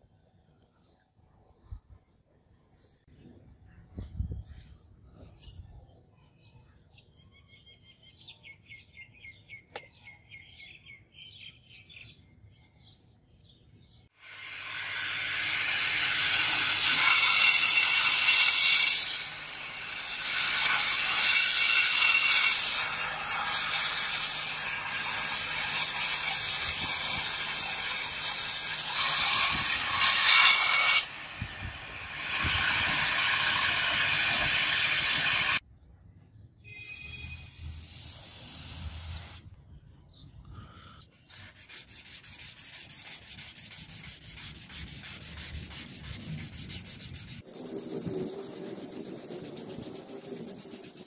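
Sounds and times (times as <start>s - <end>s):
steel blade grinding on belt: 14.6s - 31.1s.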